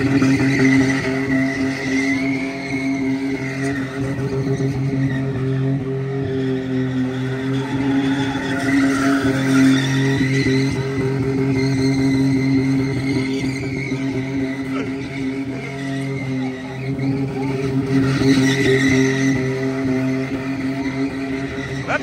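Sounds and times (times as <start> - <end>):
tires squealing: 0.0 - 22.0
truck engine high revving: 0.0 - 22.0.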